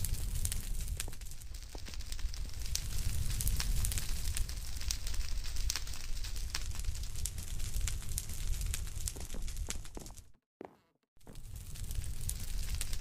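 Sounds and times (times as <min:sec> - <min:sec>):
fire crackling and popping: 0:00.0 - 0:10.4, 0:11.2 - 0:13.0.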